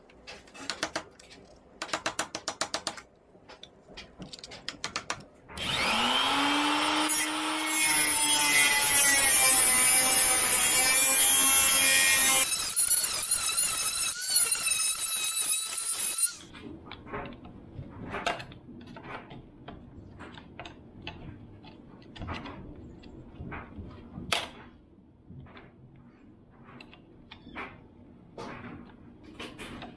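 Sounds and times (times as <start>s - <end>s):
angle grinder cutting metal: 5.6s - 16.4s.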